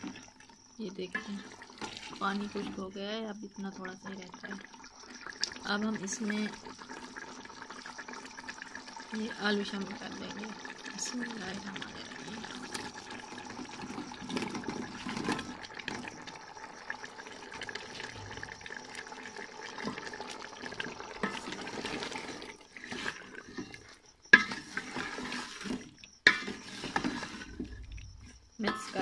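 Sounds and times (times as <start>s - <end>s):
wooden spoon stirring pot: 0.0s - 2.9s, 9.8s - 16.4s, 17.2s - 29.0s
gravy bubbling: 0.0s - 29.0s.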